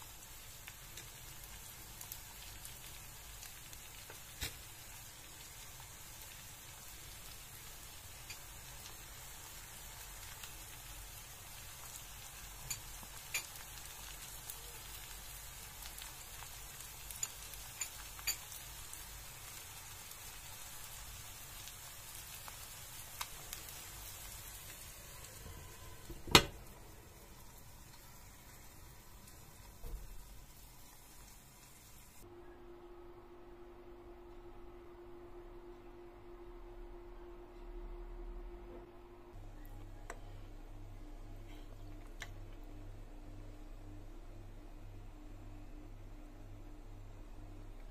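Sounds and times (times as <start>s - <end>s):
food sizzling in a frying pan: 0.0s - 32.2s.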